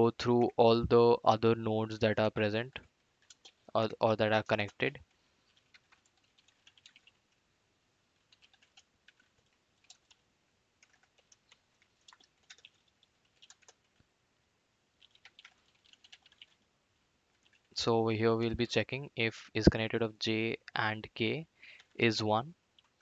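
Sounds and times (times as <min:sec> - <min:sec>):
faint typing on keyboard: 0:02.5 - 0:07.5, 0:08.1 - 0:14.1, 0:14.9 - 0:16.7, 0:17.3 - 0:17.9, 0:20.6 - 0:22.1, 0:22.7 - 0:23.0.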